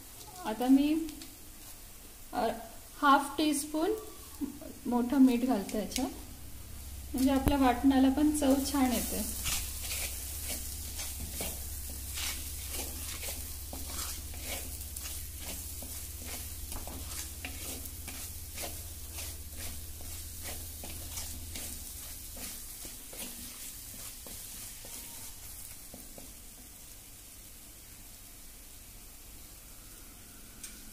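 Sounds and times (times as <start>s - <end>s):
paste sizzling in oil: 0.0s - 30.1s
wooden spatula scraping clay pot: 8.4s - 26.2s.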